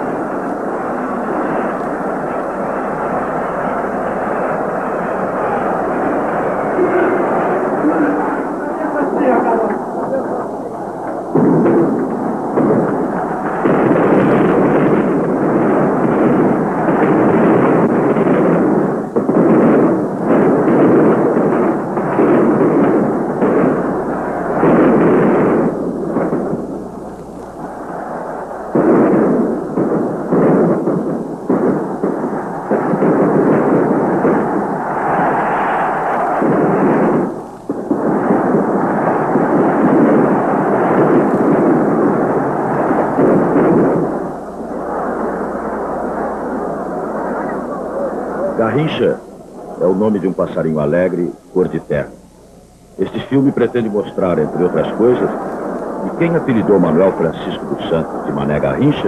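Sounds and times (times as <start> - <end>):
stadium crowd roaring: 0.0 - 18.3, 32.1 - 50.7.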